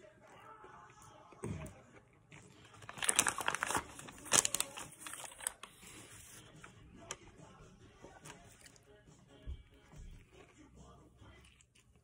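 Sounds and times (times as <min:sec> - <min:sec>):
paper wrapper crinkling: 0:02.6 - 0:06.6.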